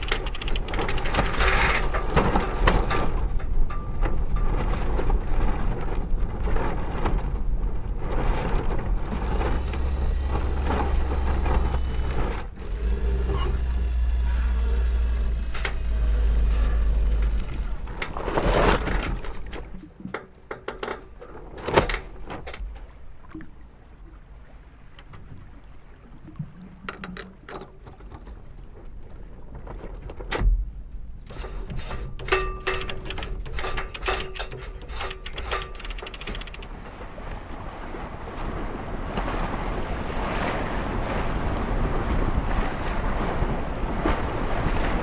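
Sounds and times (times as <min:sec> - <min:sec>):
deck hardware clicks and knocks: 0:00.0 - 0:05.8, 0:09.1 - 0:22.9, 0:26.8 - 0:28.9, 0:29.7 - 0:36.8.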